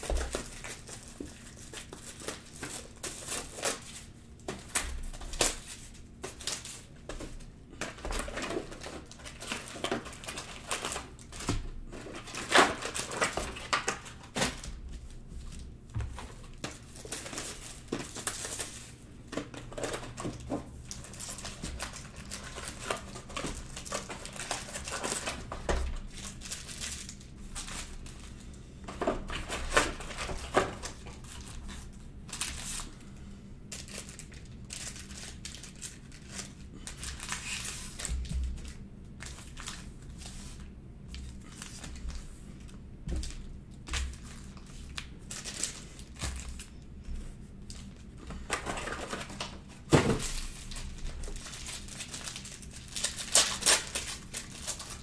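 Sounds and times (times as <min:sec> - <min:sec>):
plastic and foil packs crinkling: 0:00.0 - 0:55.0.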